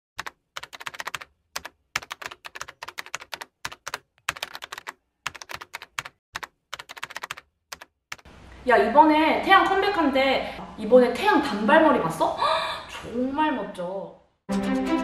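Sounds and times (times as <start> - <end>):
computer keyboard typing: 0.2 - 8.3.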